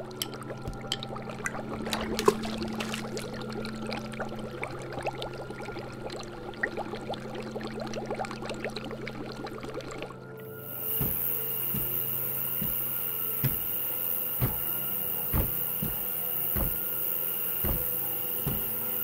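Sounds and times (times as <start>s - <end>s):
liquid bubbling and gurgling: 0.0s - 12.8s.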